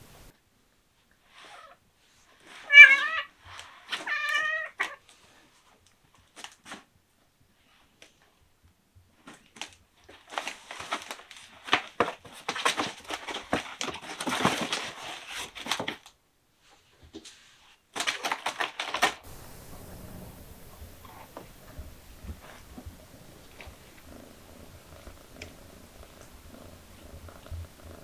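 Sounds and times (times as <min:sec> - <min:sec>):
cat meowing: 0:02.6 - 0:03.3, 0:04.0 - 0:05.0
cat scratching cardboard: 0:10.1 - 0:16.0.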